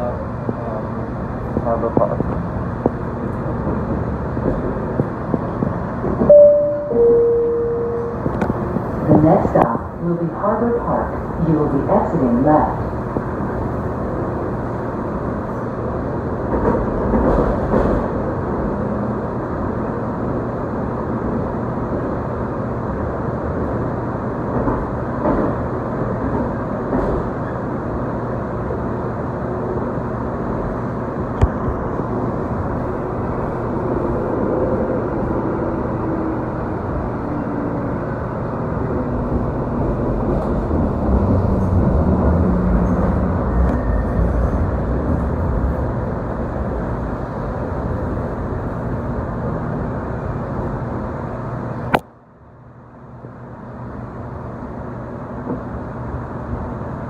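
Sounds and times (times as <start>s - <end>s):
wheels rumbling on rail: 0.0s - 57.0s.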